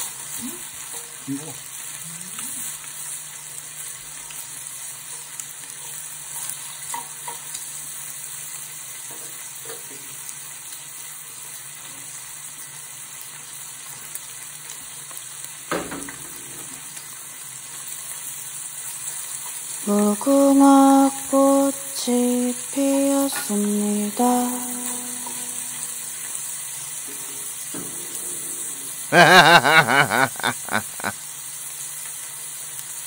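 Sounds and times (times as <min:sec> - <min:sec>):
meat sizzling in a frying pan: 0:00.0 - 0:33.0.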